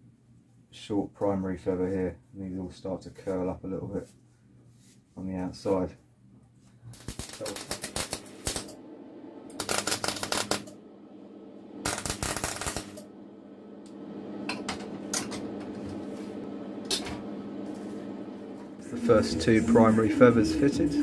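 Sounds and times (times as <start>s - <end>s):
steady hum: 6.6s - 21.0s
crackling welding arc: 6.9s - 8.8s, 9.5s - 10.8s, 11.8s - 13.1s.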